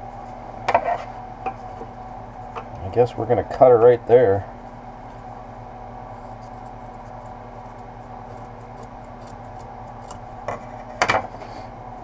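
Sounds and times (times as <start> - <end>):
steady low hum: 0.0 - 12.0
scissors snipping fabric: 8.4 - 10.2.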